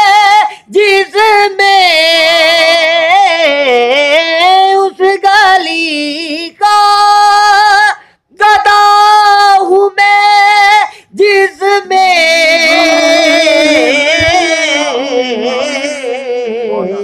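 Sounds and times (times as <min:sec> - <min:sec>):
man singing unaccompanied: 0:00.0 - 0:06.1, 0:11.2 - 0:17.0.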